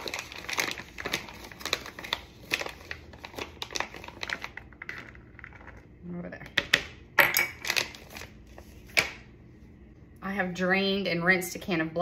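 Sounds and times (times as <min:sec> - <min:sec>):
plastic packaging crinkling: 0:00.0 - 0:05.8, 0:07.6 - 0:09.2.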